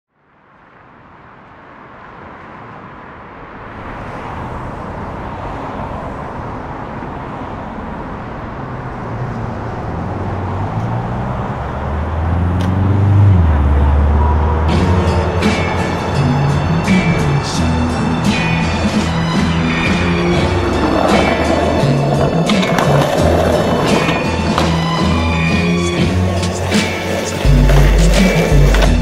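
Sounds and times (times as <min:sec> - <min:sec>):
steady rushing roar: 0:00.8 - 0:29.0.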